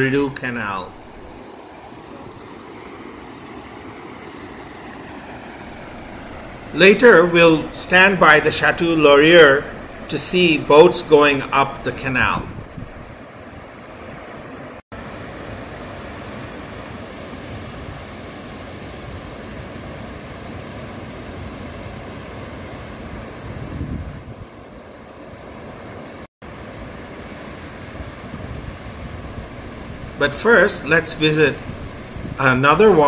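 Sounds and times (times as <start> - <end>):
flowing water rushing: 0.0 - 19.7, 24.7 - 33.0
wind buffeting microphone: 5.7 - 13.2, 23.4 - 24.5, 31.5 - 33.0.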